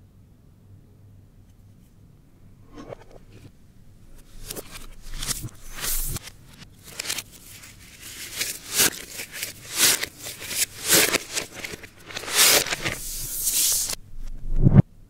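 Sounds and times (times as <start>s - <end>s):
tissue paper crinkling: 4.1s - 14.0s.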